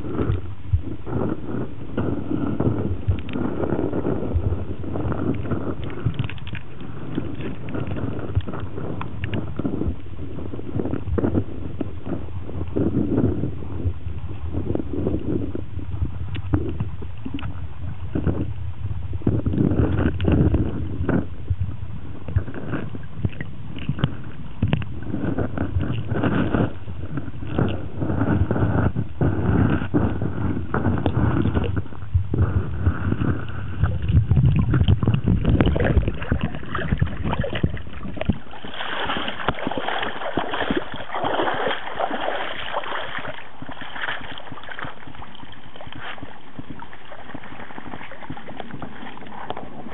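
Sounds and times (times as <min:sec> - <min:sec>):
low rumble: 0:00.0 - 0:49.9
muffled underwater sloshing: 0:00.0 - 0:49.9
water splashing: 0:33.1 - 0:49.9.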